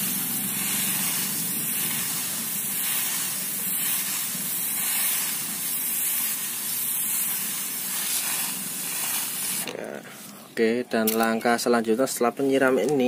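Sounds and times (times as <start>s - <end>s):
pressure sprayer hissing: 0.0s - 10.4s.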